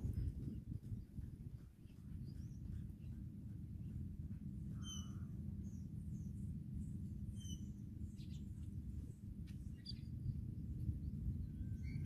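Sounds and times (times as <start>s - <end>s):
wind rumble on microphone: 0.0s - 12.0s
birds chirping: 1.6s - 10.4s.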